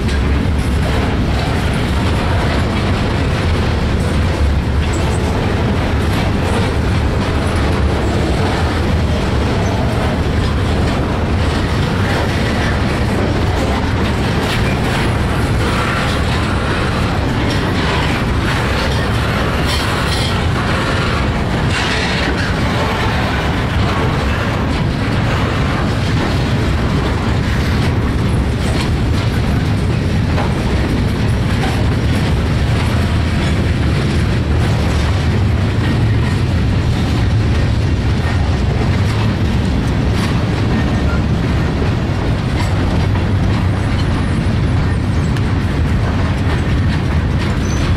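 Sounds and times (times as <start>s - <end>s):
freight train wheels rumbling on rails: 0.0s - 47.9s
wheels clicking over rail joints: 0.0s - 47.9s.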